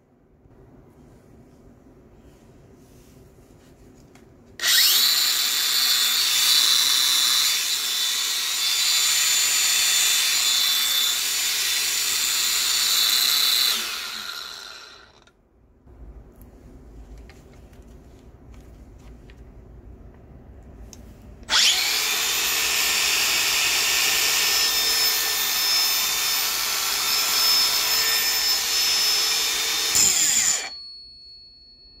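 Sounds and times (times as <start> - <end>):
angle grinder whining: 4.6 - 15.4, 21.5 - 30.8.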